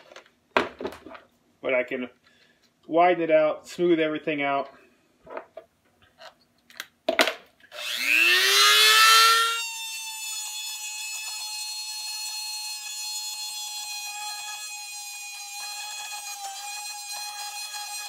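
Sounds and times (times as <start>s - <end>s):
rotary tool whining: 7.7s - 18.0s.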